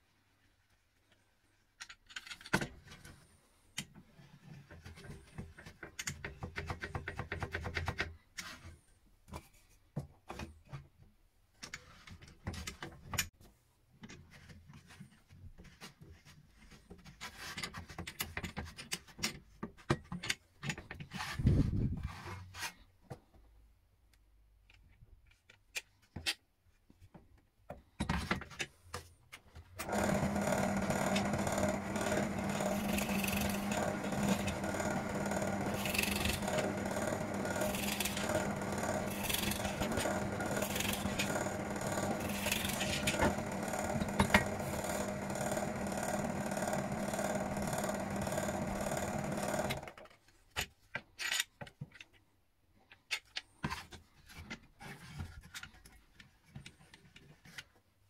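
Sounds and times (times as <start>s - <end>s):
rubbing and scraping: 21.0s - 23.0s
power tool motor running: 29.8s - 49.9s
clicks and knocks of wooden parts: 49.0s - 57.9s.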